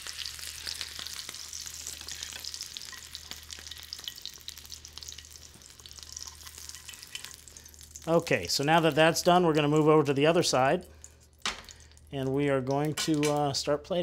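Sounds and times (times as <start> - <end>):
foie gras sizzling in a pan: 0.0 - 12.0.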